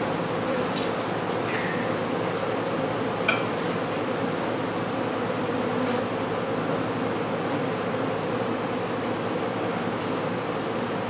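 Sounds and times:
honey bees buzzing: 0:04.0 - 0:09.9.

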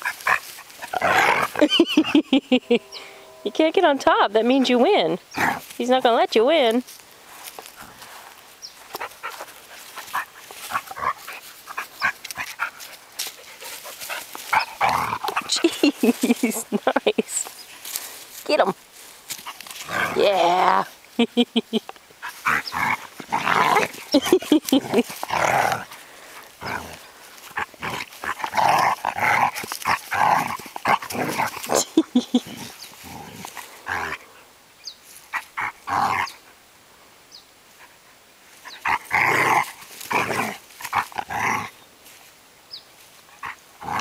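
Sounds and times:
dogs play growling: 0:00.0 - 0:02.3, 0:04.6 - 0:05.8, 0:08.9 - 0:16.8, 0:19.3 - 0:21.0, 0:22.2 - 0:34.5, 0:35.2 - 0:36.5, 0:38.5 - 0:41.9, 0:43.3 - 0:44.0.

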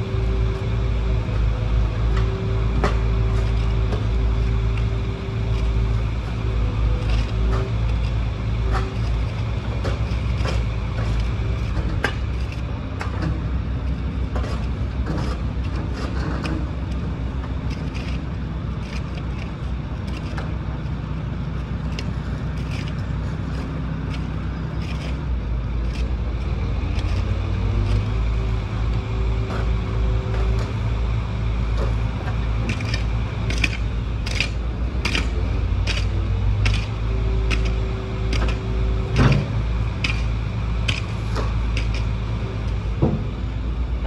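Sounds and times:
excavator diesel engine running: 0:00.0 - 0:44.0
sharp clicks and clanks: 0:17.7 - 0:21.0, 0:31.8 - 0:43.2.

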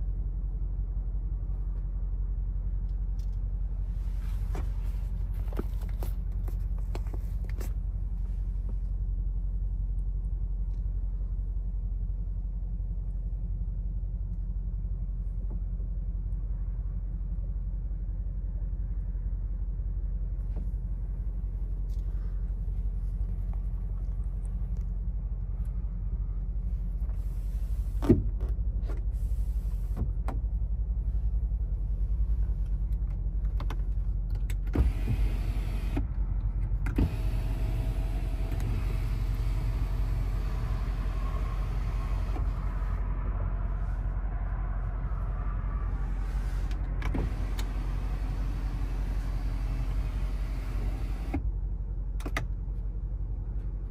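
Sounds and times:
car engine rumbling: 0:00.0 - 0:53.9
faint whine: 0:37.2 - 0:51.5.

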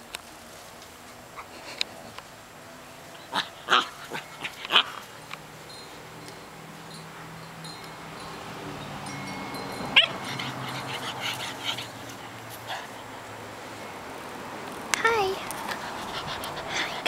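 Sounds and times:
puppy yipping: 0:10.0 - 0:11.9
light clicks of paws trotting: 0:14.6 - 0:16.7.

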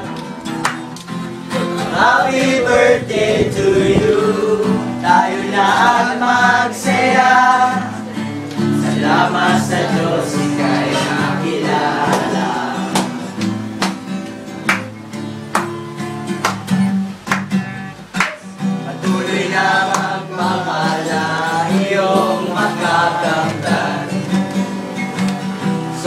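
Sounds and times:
acoustic guitar strumming: 0:00.0 - 0:26.0
group singing: 0:01.5 - 0:13.9, 0:18.8 - 0:26.0.

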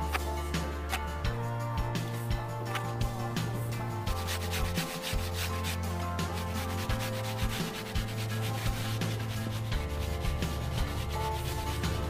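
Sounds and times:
music with held bass notes: 0:00.0 - 0:12.0
rubbing scraping noise: 0:04.1 - 0:12.0.

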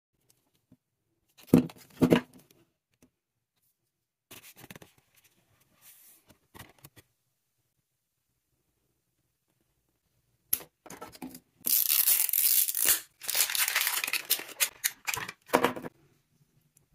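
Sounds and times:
plastic wrapping crinkling: 0:11.7 - 0:15.5
paper leaflet rustling: 0:13.2 - 0:15.5.

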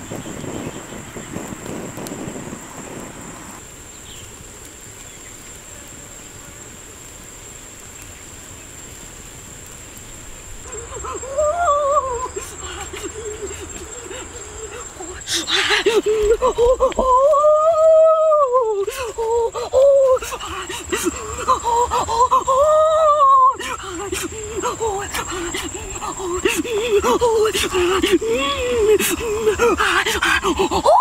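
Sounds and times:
high-pitched insect drone: 0:10.6 - 0:31.0.

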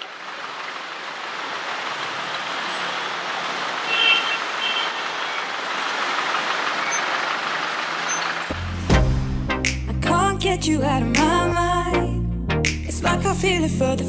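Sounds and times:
slow city traffic: 0:00.0 - 0:10.5.

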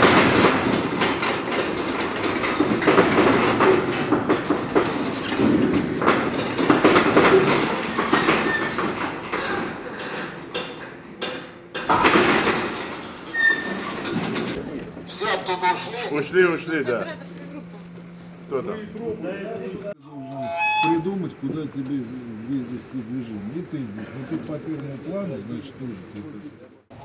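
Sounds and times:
metal frame rattling and clanking: 0:00.0 - 0:14.8.

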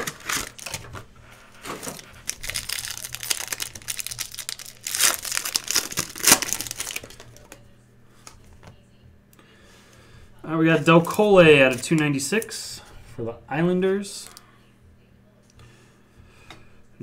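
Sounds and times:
foil wrapper crinkling: 0:00.0 - 0:07.6.

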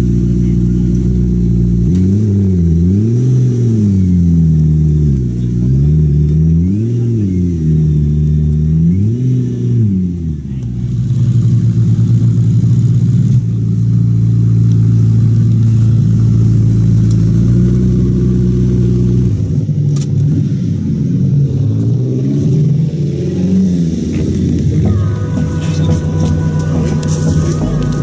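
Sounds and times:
car engine idling: 0:00.0 - 0:28.0
music: 0:24.8 - 0:28.0.

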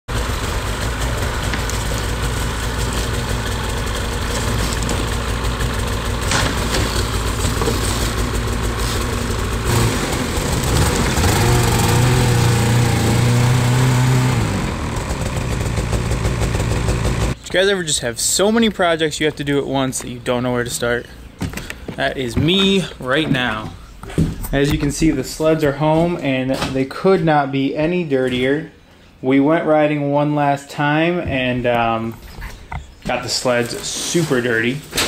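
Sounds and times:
snowmobile engine running: 0:00.1 - 0:17.4.

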